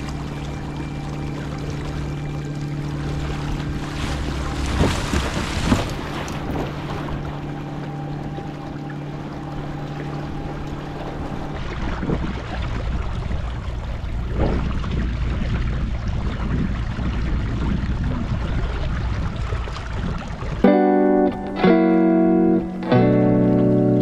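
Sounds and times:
water rushing and splashing: 0:00.0 - 0:24.0
wind on microphone: 0:03.0 - 0:20.7.

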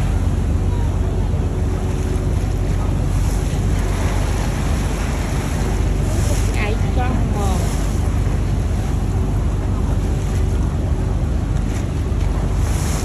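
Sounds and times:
boat engine running: 0:00.0 - 0:13.0
water rushing past hull: 0:00.0 - 0:13.0
wind buffeting microphone: 0:00.0 - 0:13.0.

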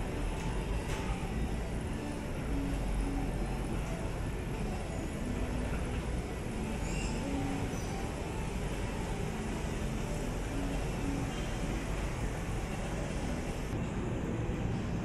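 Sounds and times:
station and city rumble: 0:00.0 - 0:15.0
high chirp: 0:04.6 - 0:13.9.

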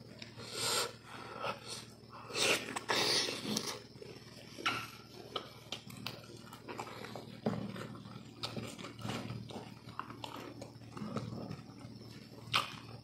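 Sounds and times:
man chewing wetly: 0:00.1 - 0:13.0
loud noisy breaths: 0:00.4 - 0:03.6.

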